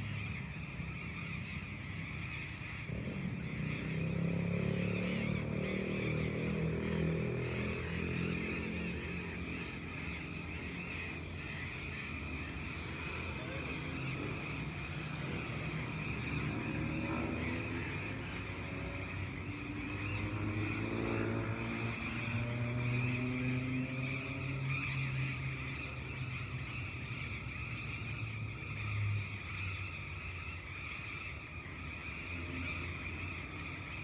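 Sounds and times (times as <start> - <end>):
birds chirping: 0.0 - 34.0
distant engine accelerating: 2.7 - 29.3.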